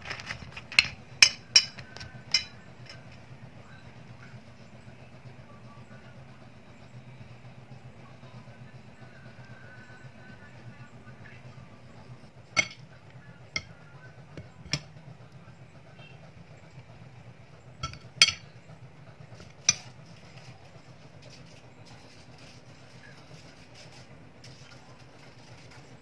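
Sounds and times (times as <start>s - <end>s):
steady low hum: 0.0s - 26.0s
spoons clinking against dishes: 0.7s - 3.2s, 12.6s - 13.8s, 17.8s - 18.6s, 19.4s - 20.0s.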